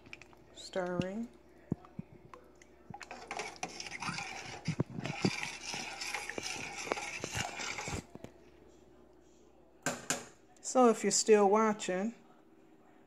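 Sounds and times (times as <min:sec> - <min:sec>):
spoon knocking and scraping pot: 0:03.0 - 0:08.1
thick sauce swishing: 0:03.0 - 0:08.2.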